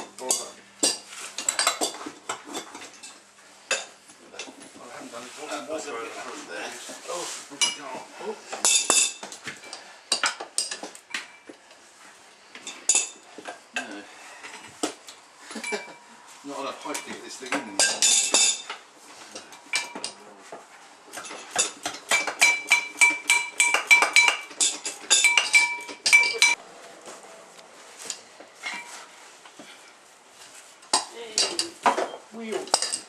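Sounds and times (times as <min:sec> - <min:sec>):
metal tools clanking: 0:15.5 - 0:16.1, 0:16.8 - 0:20.2, 0:21.1 - 0:26.6, 0:28.1 - 0:29.1.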